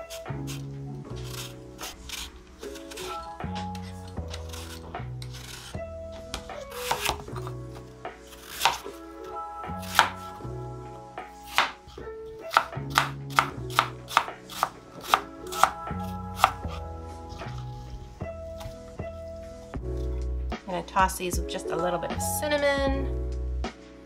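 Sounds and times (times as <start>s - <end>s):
background music with bass line: 0.0s - 24.0s
knife chopping on cutting board: 6.3s - 7.6s, 8.3s - 8.9s, 9.8s - 10.3s, 11.5s - 11.8s, 12.4s - 16.8s.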